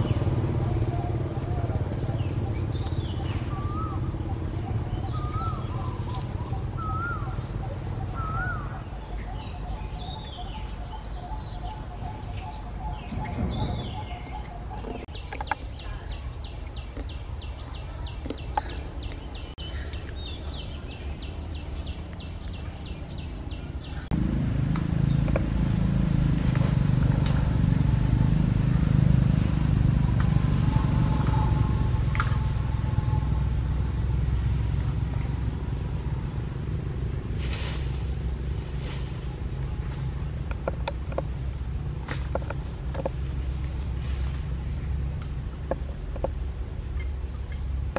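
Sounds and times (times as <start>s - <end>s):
birds chirping: 0.0s - 28.4s
steady low rumble: 0.0s - 47.9s.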